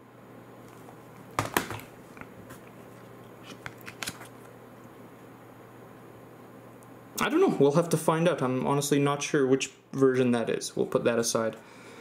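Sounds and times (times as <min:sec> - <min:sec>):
trading cards clicking and snapping: 0:01.4 - 0:02.3, 0:03.4 - 0:04.4.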